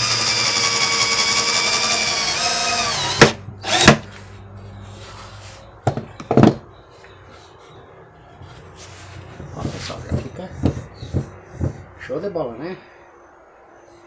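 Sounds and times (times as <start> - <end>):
cordless drill driving screw into wood: 0.0 - 4.0.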